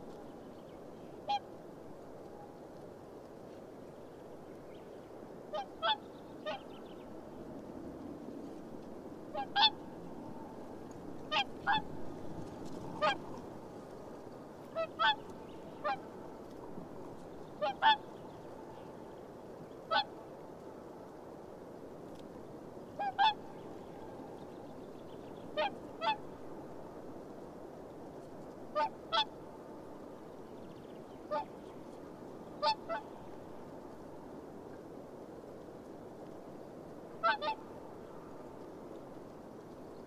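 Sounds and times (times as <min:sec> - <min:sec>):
swans bugling honks: 0:09.3 - 0:09.8, 0:13.0 - 0:13.3, 0:14.7 - 0:15.2, 0:17.6 - 0:18.0, 0:23.0 - 0:23.4, 0:32.6 - 0:33.2, 0:37.2 - 0:37.6.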